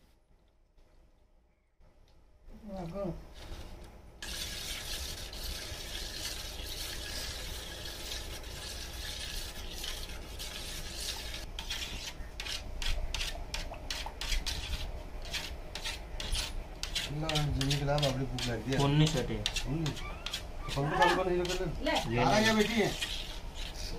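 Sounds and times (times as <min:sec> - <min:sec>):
spoon scraping steel plate: 0:04.2 - 0:23.9.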